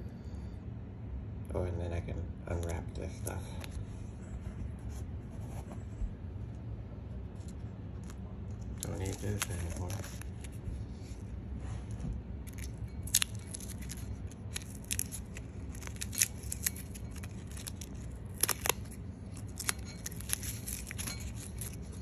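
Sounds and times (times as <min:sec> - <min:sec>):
masking tape peeling and crackling: 0:07.4 - 0:11.2, 0:12.5 - 0:22.0.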